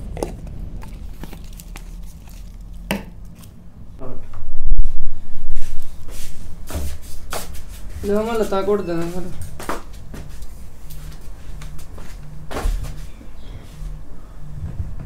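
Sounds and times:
rustling handling noise: 0.0 - 3.6.

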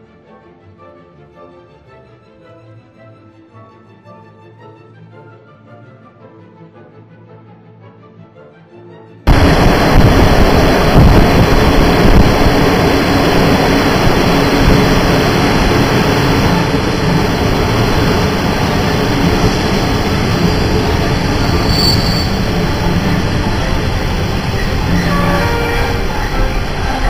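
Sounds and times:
train wheels running on rails: 9.3 - 27.0
faint high squeal: 20.4 - 22.7.

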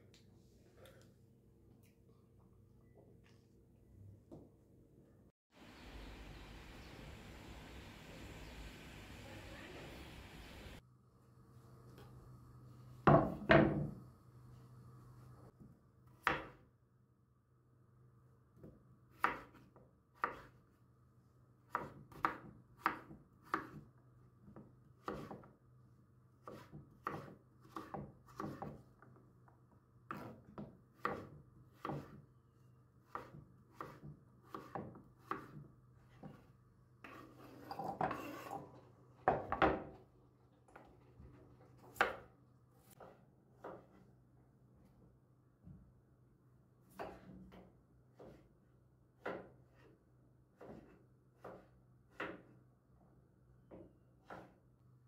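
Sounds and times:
knife chopping on wooden board: 19.1 - 20.5, 21.7 - 23.8, 25.0 - 25.5, 26.4 - 28.8, 30.1 - 32.2, 33.1 - 35.6, 48.1 - 48.4, 49.2 - 49.7, 50.6 - 52.5, 53.7 - 54.6
knife scraping board: 37.0 - 38.7.

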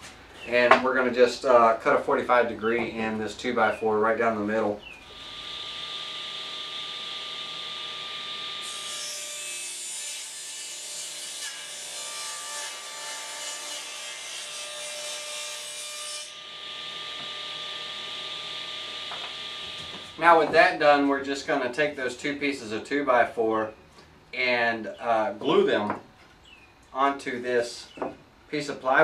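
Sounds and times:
table saw whining: 5.0 - 10.3, 16.2 - 20.5.

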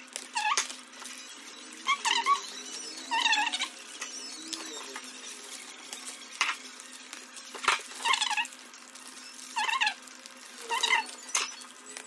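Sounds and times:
squeaky sped-up voice: 1.2 - 5.9, 9.5 - 10.0, 10.6 - 11.7.

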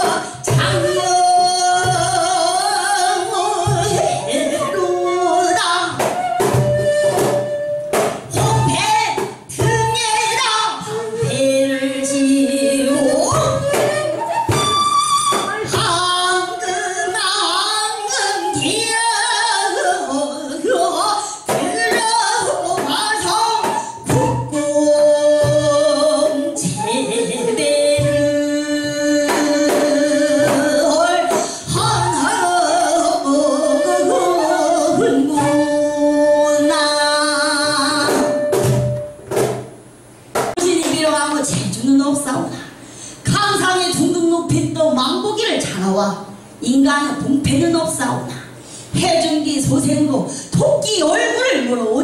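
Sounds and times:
woman singing: 0.0 - 38.7, 49.0 - 52.0
drum kit: 37.9 - 41.7.

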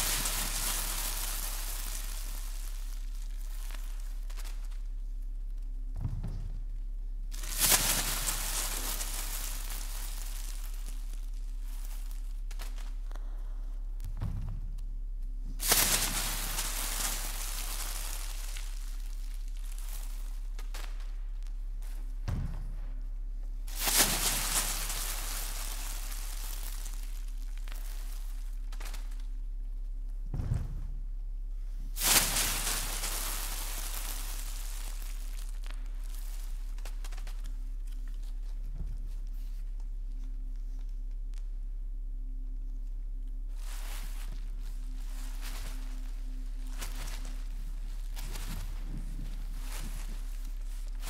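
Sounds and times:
crackling rustling noise: 0.0 - 51.0
electrical hum: 0.0 - 51.0
newspaper crumpling: 23.7 - 29.2, 32.0 - 38.3.

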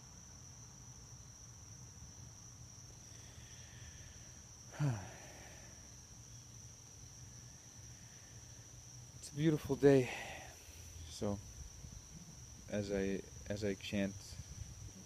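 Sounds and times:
crickets trilling: 0.0 - 15.0
man making low sound: 4.7 - 5.6.

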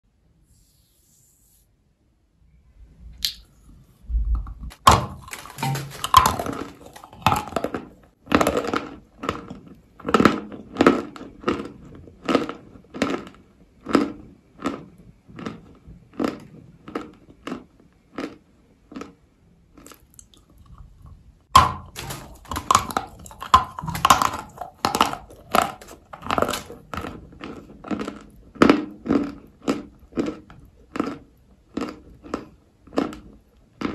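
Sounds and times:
crunchy bite: 4.7 - 19.2, 21.6 - 33.9
crunchy chewing: 4.7 - 33.9.

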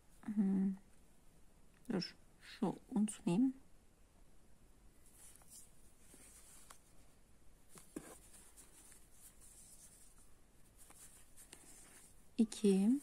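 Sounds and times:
yarn rustling with crochet hook: 5.0 - 13.0.

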